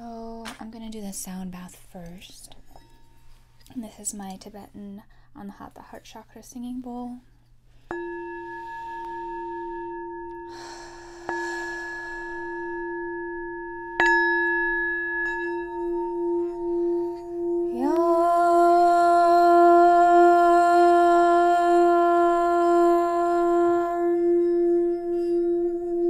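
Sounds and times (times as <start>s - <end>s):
singing bowl ringing: 7.9s - 26.0s
sustained chanted tone: 15.6s - 26.0s.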